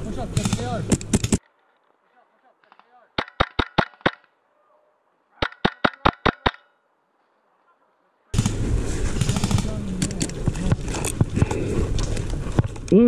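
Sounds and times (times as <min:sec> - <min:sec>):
airsoft rifle shots: 0:00.3 - 0:01.4, 0:02.7 - 0:04.3, 0:05.4 - 0:06.7, 0:08.4 - 0:09.8
rustling and handling noise: 0:00.8 - 0:02.8.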